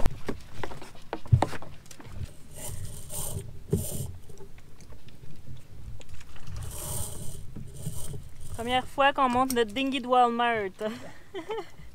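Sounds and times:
short hissing rustles: 2.3s - 4.4s, 6.5s - 8.8s.

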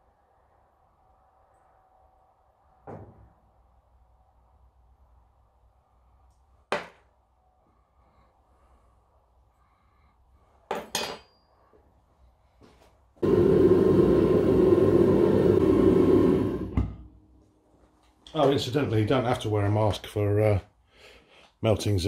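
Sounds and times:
gas burner roaring: 13.2s - 17.4s.

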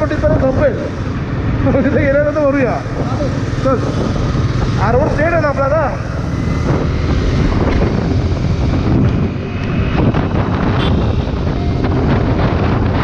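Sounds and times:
motorcycle engine running: 0.0s - 13.0s
wind buffeting microphone: 2.6s - 13.0s.

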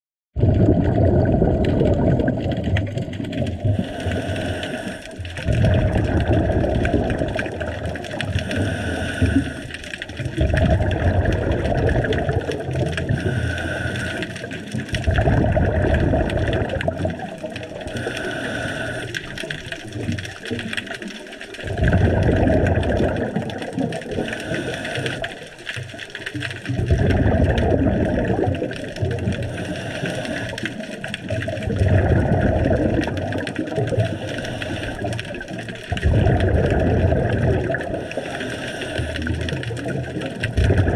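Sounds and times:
exhaled bubbles rushing: 0.4s - 40.9s
regulator inhale hiss: 3.8s - 5.3s, 8.4s - 9.9s, 13.1s - 14.5s, 17.9s - 19.4s, 24.2s - 25.5s, 29.4s - 30.8s, 34.0s - 35.2s, 38.0s - 39.4s.

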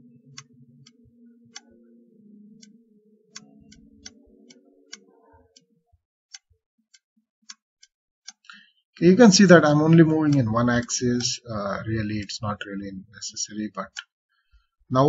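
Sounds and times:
faint low hum: 0.0s - 6.0s.

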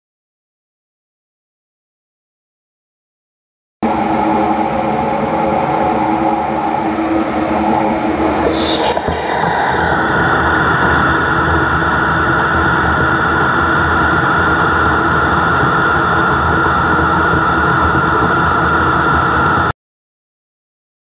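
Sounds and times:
lathe running noise: 3.8s - 19.6s
high machine whine: 3.8s - 19.7s.

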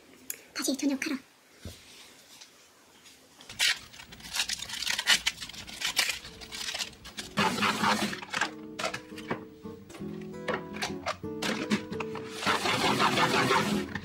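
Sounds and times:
lettuce leaves tearing: 3.5s - 9.0s, 10.8s - 14.0s
soft background music: 5.8s - 14.0s
plastic lid handled: 6.5s - 12.4s.

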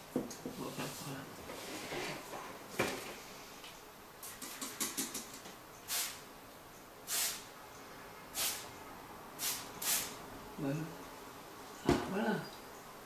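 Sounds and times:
spray bottle squirting: 5.9s - 6.2s, 7.1s - 7.5s, 8.4s - 8.6s, 9.4s - 10.2s.

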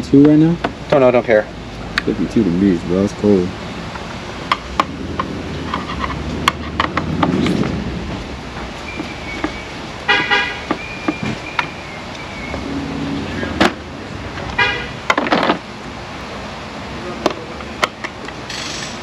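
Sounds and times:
hand tool clicks and knocks: 4.5s - 7.6s.

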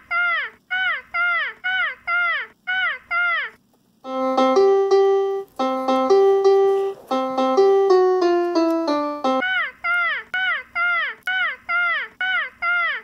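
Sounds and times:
piano tune: 4.1s - 9.4s.

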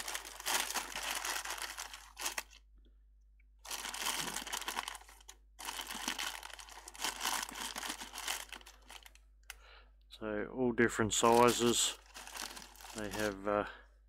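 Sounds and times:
plastic bag crinkling: 0.0s - 2.6s, 3.6s - 9.2s, 11.2s - 13.4s.

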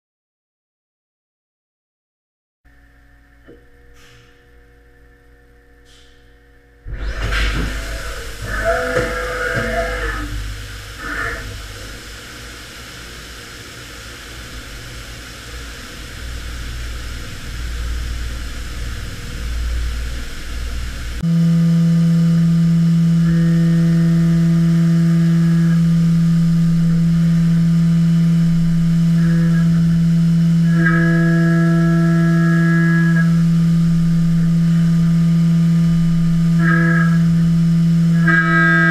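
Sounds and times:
high whine: 2.7s - 38.9s
low wavering rumble: 2.8s - 38.9s
milling spindle low tone: 6.9s - 12.1s, 21.2s - 38.9s.

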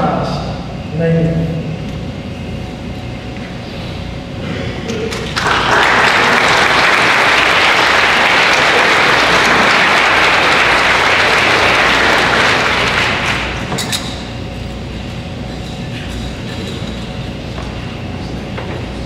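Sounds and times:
audience applauding: 5.1s - 13.8s.

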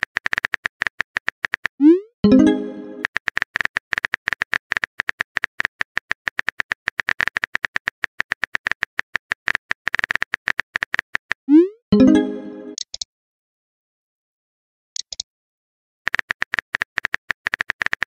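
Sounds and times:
keyboard typing clicks: 15.0s - 15.2s.

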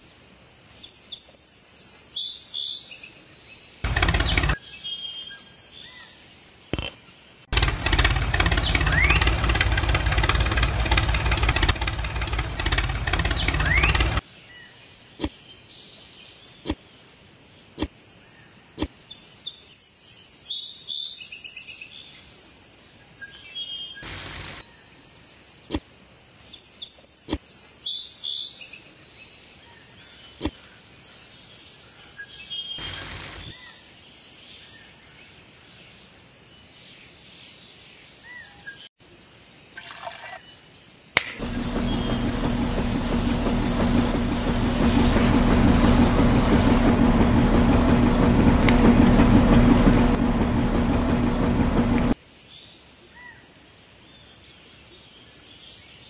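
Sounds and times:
mix churning in drum: 3.9s - 4.6s, 7.5s - 14.2s, 41.3s - 52.2s
small mixer motor humming: 3.9s - 4.6s, 7.5s - 14.2s, 24.0s - 24.6s, 32.8s - 33.5s, 41.3s - 52.2s.

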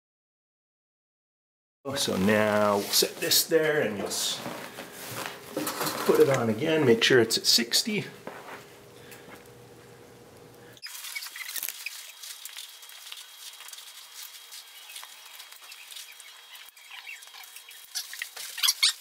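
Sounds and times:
low room hum: 1.9s - 18.7s.

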